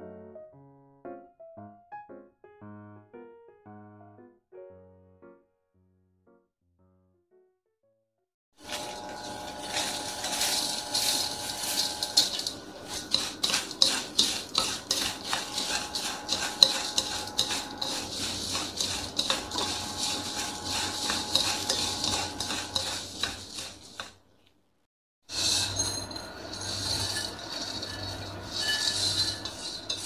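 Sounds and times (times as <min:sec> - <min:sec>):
food sizzling in hot oil: 0:08.6 - 0:24.2, 0:25.3 - 0:30.0
wooden utensils scraping a wok: 0:08.6 - 0:24.3, 0:25.3 - 0:30.0.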